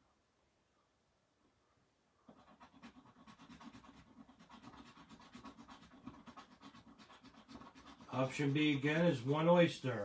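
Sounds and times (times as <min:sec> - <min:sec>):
scratch card being scratched: 0:02.3 - 0:08.6.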